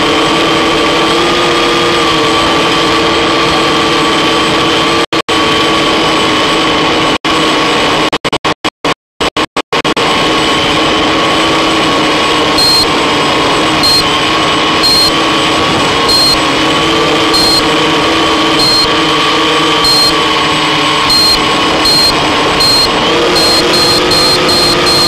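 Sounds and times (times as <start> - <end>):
electric motors whining: 10.0 - 25.0
short high beeps: 12.6 - 12.9, 13.8 - 14.1, 14.8 - 15.2, 16.1 - 16.4, 17.3 - 17.7, 18.6 - 19.0, 19.8 - 20.2, 21.0 - 25.0.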